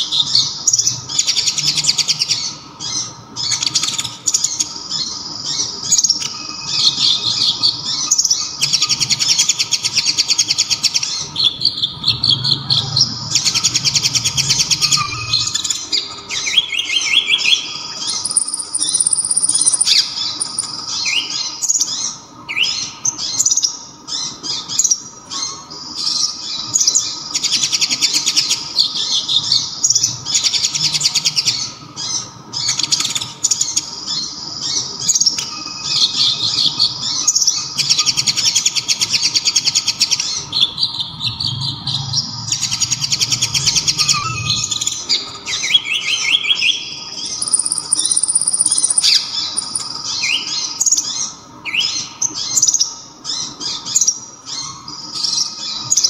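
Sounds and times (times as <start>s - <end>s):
bird singing high twittering trills: 0.0s - 56.0s.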